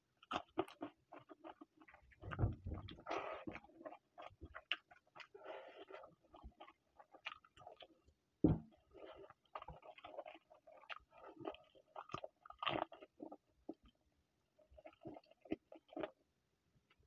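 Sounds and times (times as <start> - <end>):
man chewing food: 0.0 - 14.0, 14.6 - 16.3
louder thump: 2.3 - 3.0, 8.4 - 8.7.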